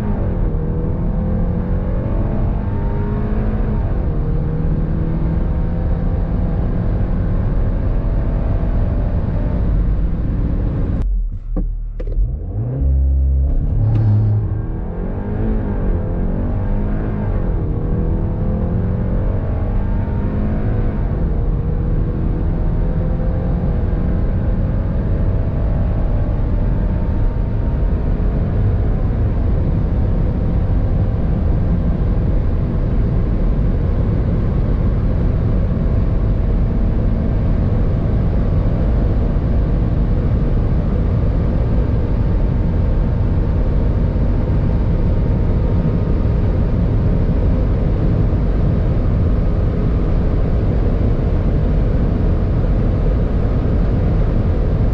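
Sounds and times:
car engine accelerating: 0.0s - 54.9s
wind and road noise: 0.0s - 54.9s.

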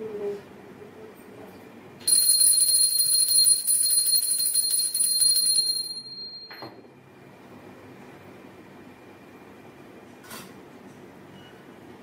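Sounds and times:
hand bell ringing rapidly: 2.1s - 6.5s.

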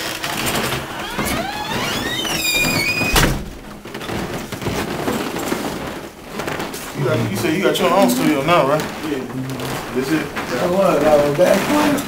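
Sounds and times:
soft rustling: 0.0s - 12.0s
door hinge squealing: 0.9s - 3.4s
door bang: 2.6s - 3.8s.

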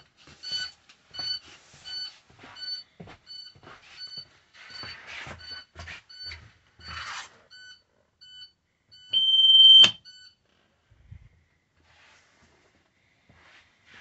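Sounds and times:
alarm beeping short chimes: 0.5s - 10.4s
long loud steady beep: 0.5s - 10.4s.

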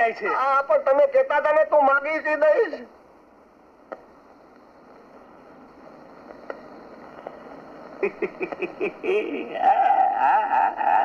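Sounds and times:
film soundtrack hiss: 0.0s - 11.0s
high wavering whine-like vocal sound: 7.0s - 11.0s.

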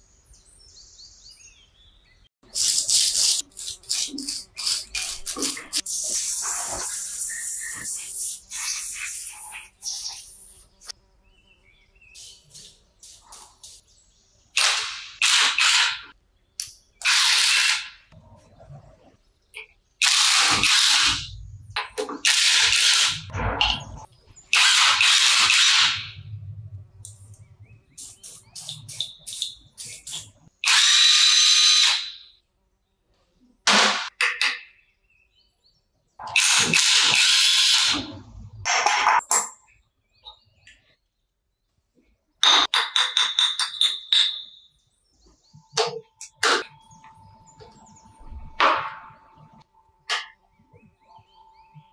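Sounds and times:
aerosol spray can hissing: 2.6s - 10.9s, 28.0s - 30.3s.

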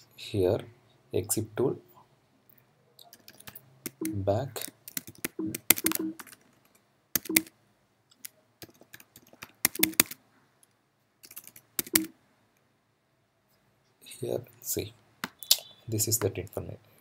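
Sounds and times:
computer keyboard typing: 3.1s - 7.5s, 8.2s - 10.2s, 11.2s - 12.1s.

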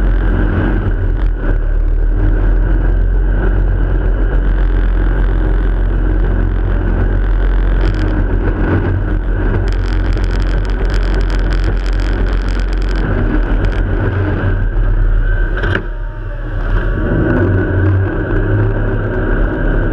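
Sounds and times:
jet boat engine and water rush: 0.0s - 19.9s
rapid crackling: 0.0s - 19.9s
wind on microphone: 0.0s - 19.9s.

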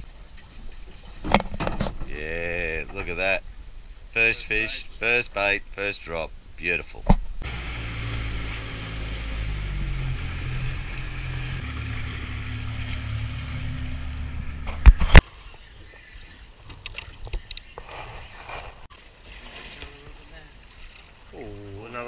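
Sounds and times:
wind: 0.0s - 22.0s
outboard motor running: 7.4s - 15.2s
water rushing: 7.4s - 15.2s.

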